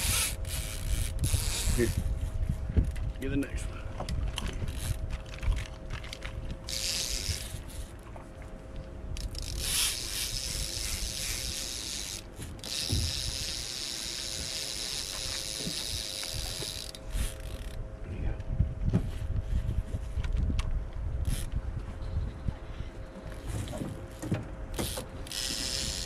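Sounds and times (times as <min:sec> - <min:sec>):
fishing reel ratchet buzzing: 0:00.0 - 0:02.1, 0:06.7 - 0:07.8, 0:09.2 - 0:17.8, 0:24.8 - 0:26.0.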